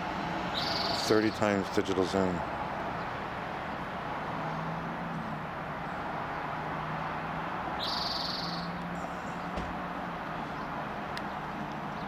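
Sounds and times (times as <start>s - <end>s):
distant traffic: 0.0s - 12.0s
songbird trill: 0.5s - 1.4s, 7.8s - 9.5s.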